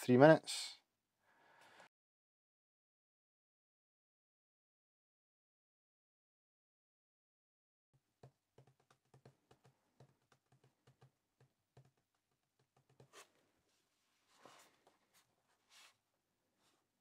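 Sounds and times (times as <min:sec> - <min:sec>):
small clicks and taps: 0:08.2 - 0:13.2
soft rustles: 0:13.2 - 0:16.0.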